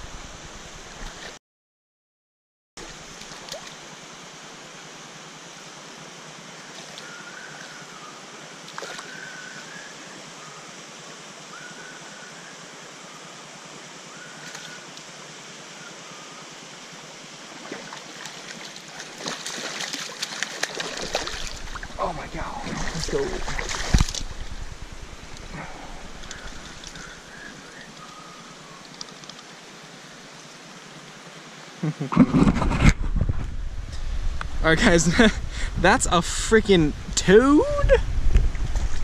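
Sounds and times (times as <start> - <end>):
river water flowing: 2.8 - 31.8
fish splashing in water: 8.7 - 9.1, 17.6 - 22.0, 22.6 - 24.6.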